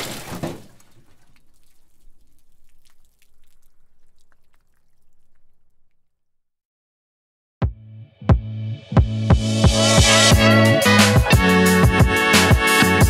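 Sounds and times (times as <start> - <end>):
liquid splash: 0.0 - 6.0
small drips and wet splats: 0.0 - 6.1.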